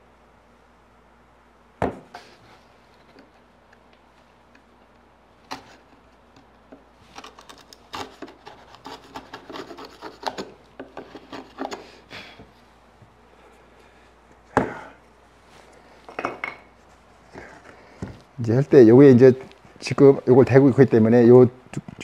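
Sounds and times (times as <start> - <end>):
chisel scraping wood: 7.2 - 12.0.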